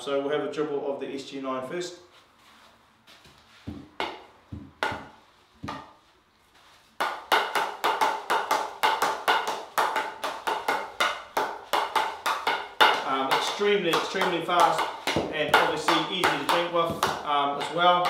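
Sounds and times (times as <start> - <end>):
hockey stick tapping ball: 3.7 - 6.0, 6.6 - 18.0.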